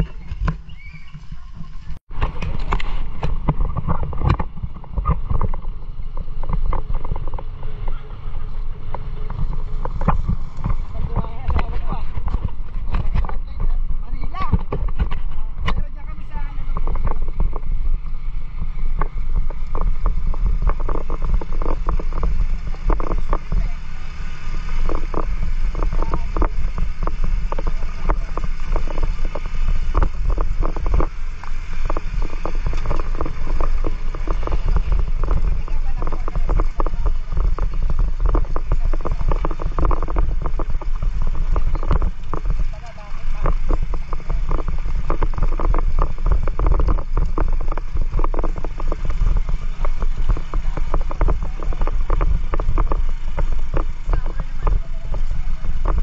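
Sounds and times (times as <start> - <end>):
motorcycle engine and wind rumble: 0.0 - 56.0
rapid irregular clicks and rattles: 18.9 - 56.0.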